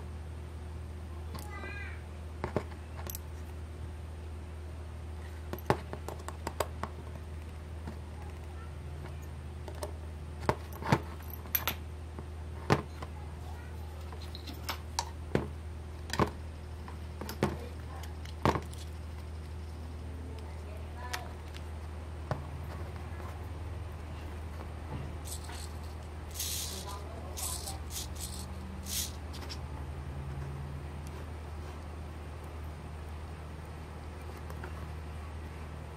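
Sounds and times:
steady low hum: 0.0s - 35.9s.

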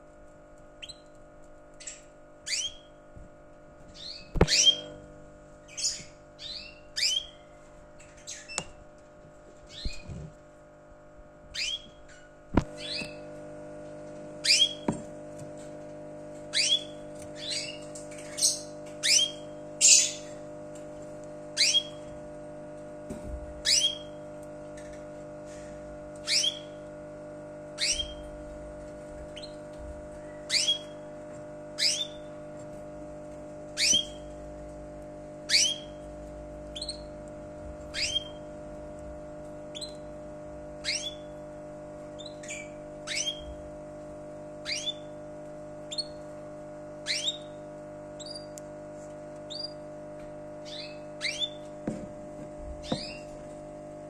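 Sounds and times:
steady low hum: 0.0s - 54.0s
bird chirping: 0.8s - 1.2s, 1.8s - 3.0s, 4.0s - 5.0s, 5.6s - 8.7s, 9.7s - 10.2s, 11.5s - 13.2s, 14.4s - 14.9s, 16.5s - 20.4s, 21.6s - 22.1s, 23.6s - 24.2s, 26.2s - 26.8s, 27.8s - 28.4s, 29.3s - 31.1s, 31.8s - 32.3s, 33.7s - 34.4s, 35.5s - 36.1s, 36.7s - 37.2s, 37.8s - 38.5s, 39.7s - 40.1s, 40.8s - 41.4s, 42.2s - 43.6s, 44.6s - 45.2s, 45.9s - 46.3s, 47.0s - 47.6s, 48.2s - 48.6s, 49.5s - 49.8s, 50.6s - 51.7s, 52.8s - 53.4s.

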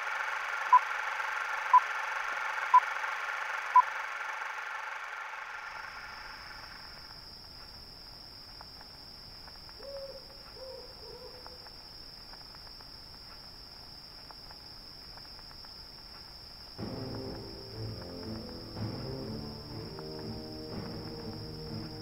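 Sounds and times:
crickets chirping: 0.0s - 22.0s
owl hooting: 9.8s - 11.7s
low rumble: 16.8s - 22.0s.

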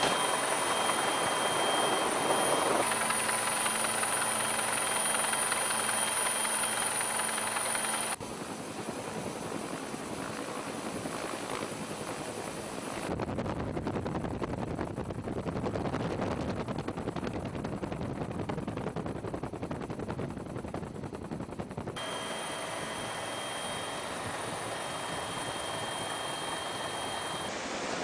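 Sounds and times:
helicopter cabin rushing: 0.0s - 8.2s, 14.0s - 27.6s
helicopter rotor beating: 0.0s - 13.1s, 16.6s - 28.0s.

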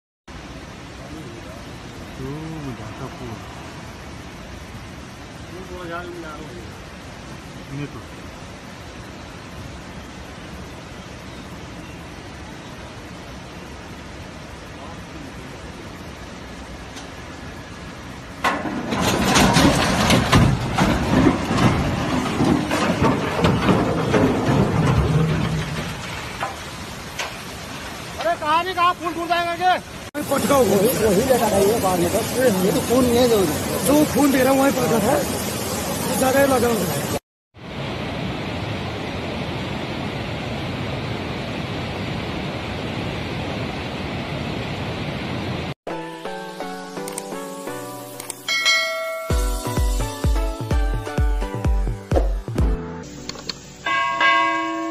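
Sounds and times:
fast mountain stream rushing: 0.3s - 52.0s, 53.3s - 54.9s
metal and rock clattering: 18.4s - 28.4s
bridge collapsing crash: 18.4s - 28.7s
chiming music jingle: 48.5s - 50.5s.

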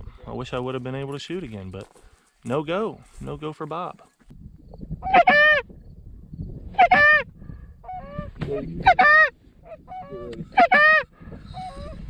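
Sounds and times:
goose honking: 5.0s - 5.6s, 6.8s - 7.2s, 8.8s - 11.1s.

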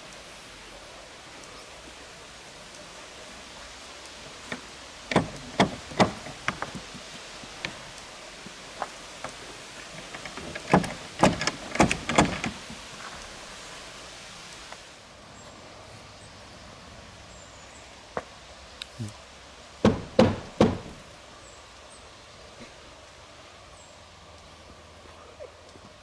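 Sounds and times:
knocking on wooden gate: 4.5s - 7.0s, 10.0s - 12.6s, 19.8s - 21.0s.

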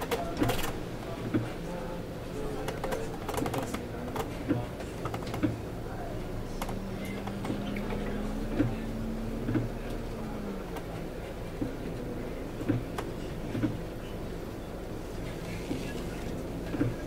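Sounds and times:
bus drivetrain hum: 0.0s - 17.0s.

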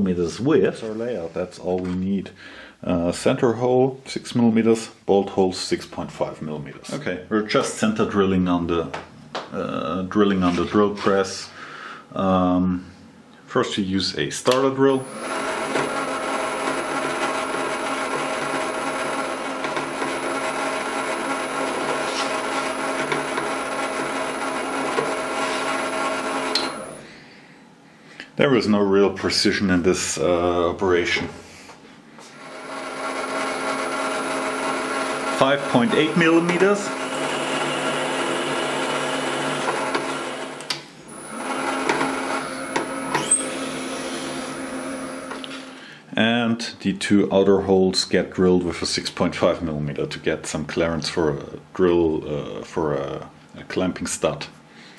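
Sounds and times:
drill bit cutting into sheet: 14.9s - 27.1s, 32.4s - 45.7s
drill press motor humming: 14.9s - 27.1s, 32.2s - 45.8s.

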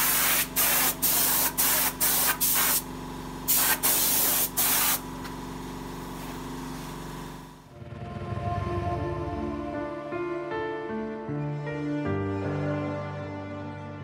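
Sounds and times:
spray gun hissing: 0.0s - 2.8s, 3.5s - 5.0s
steady low hum: 2.6s - 10.5s.

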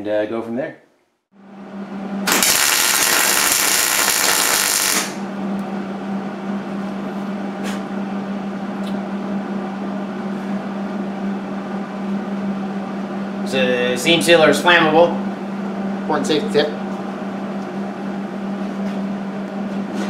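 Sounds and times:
steady low hum: 1.4s - 20.0s
welder arc crackling: 2.3s - 5.2s.

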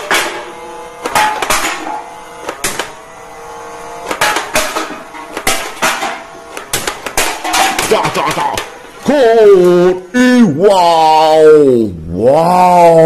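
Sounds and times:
foam dart blaster firing: 0.0s - 8.8s
metal cans clattering: 4.1s - 8.4s
metallic ringing of cans: 7.1s - 8.0s.

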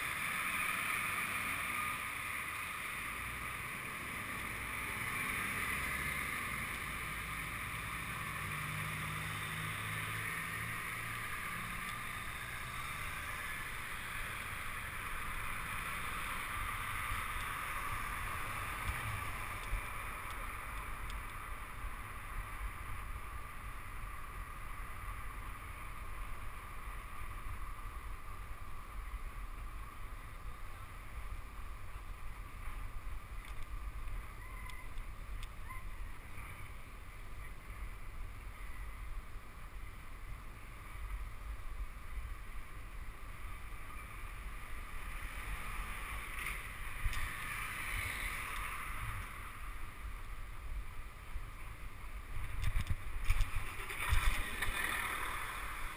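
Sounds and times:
bicycle road rumble: 0.0s - 55.9s
low traffic engine hum: 0.0s - 55.9s.

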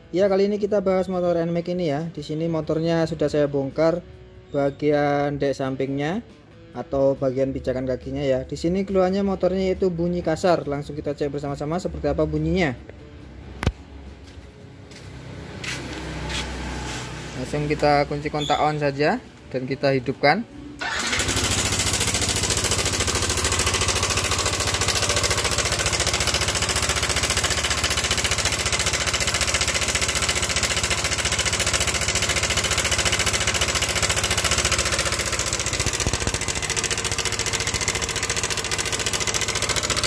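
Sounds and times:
scooter engine idling with rattle: 20.8s - 40.0s.

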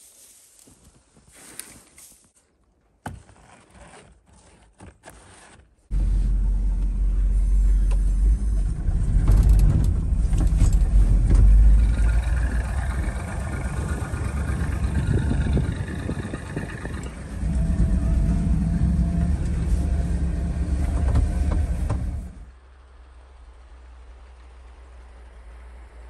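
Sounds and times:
truck engine rumbling: 5.9s - 26.0s.

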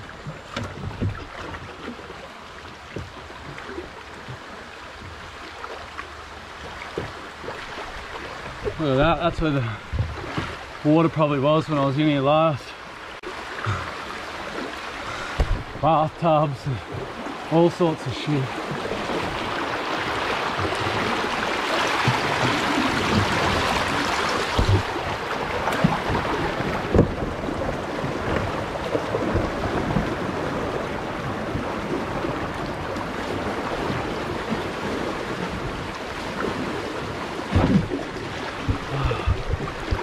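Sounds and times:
river water rushing: 0.0s - 40.0s
sharp knocks: 15.4s - 15.8s, 24.6s - 24.9s.

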